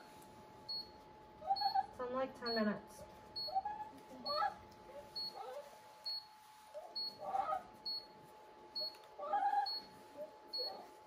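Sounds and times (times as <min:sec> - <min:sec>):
dog whining: 0:01.4 - 0:01.9, 0:03.4 - 0:05.8, 0:06.8 - 0:08.1, 0:08.8 - 0:11.0.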